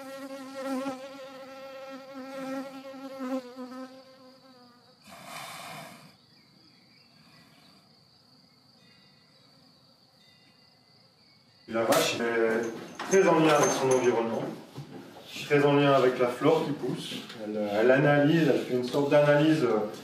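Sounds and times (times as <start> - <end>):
flying insect buzzing: 0.0 - 6.2
high-pitched insect trill: 0.0 - 11.8.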